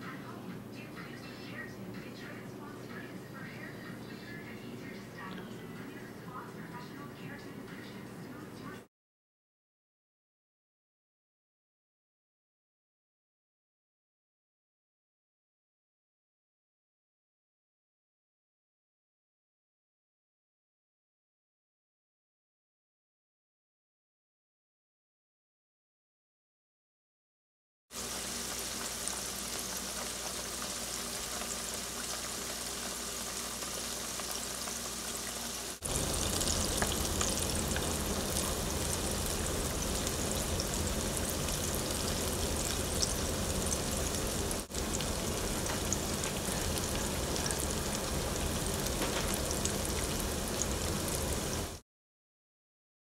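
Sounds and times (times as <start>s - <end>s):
mushrooms sizzling in a pan: 28.0s - 51.8s.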